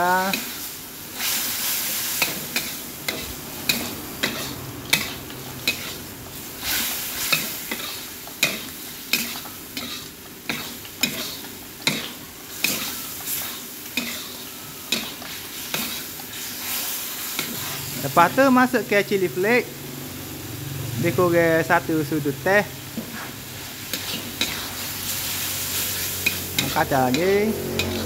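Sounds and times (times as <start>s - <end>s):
food sizzling: 0.0s - 28.0s
spatula scraping a wok: 0.2s - 18.3s, 22.9s - 28.0s
spatula clanking against pan: 2.2s - 6.0s, 7.3s - 13.0s, 26.2s - 28.0s.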